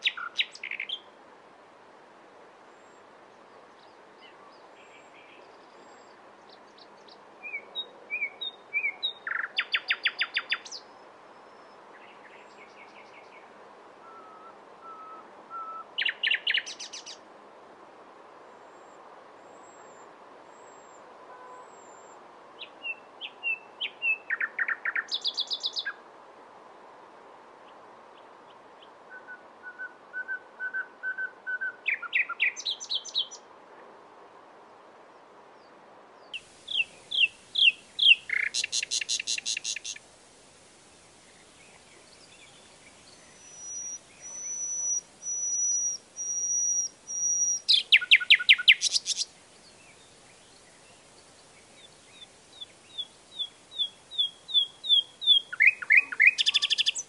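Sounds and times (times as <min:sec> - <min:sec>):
nightingale singing: 0:00.0 - 0:01.1, 0:03.8 - 0:17.2, 0:22.6 - 0:26.0, 0:28.8 - 0:33.4, 0:36.2 - 0:40.0, 0:41.0 - 0:57.0.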